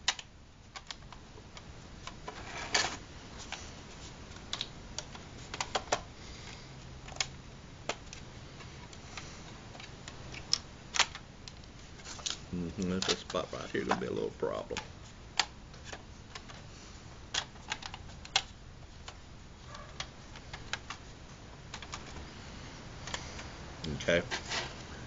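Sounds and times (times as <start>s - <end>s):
plastic pieces clicking and tapping: 0.0s - 2.4s, 4.3s - 6.1s, 8.8s - 16.6s, 17.3s - 19.2s, 20.0s - 21.0s, 21.7s - 22.2s.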